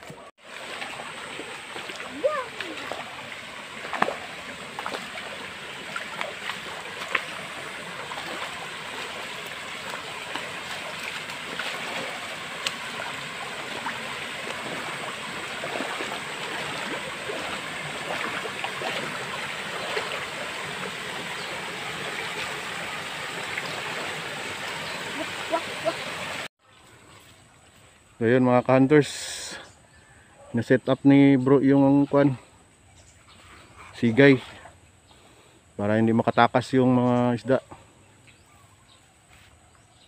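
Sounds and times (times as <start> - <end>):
stream rushing over rocks: 0.0 - 26.5
wading splashes: 0.0 - 26.5.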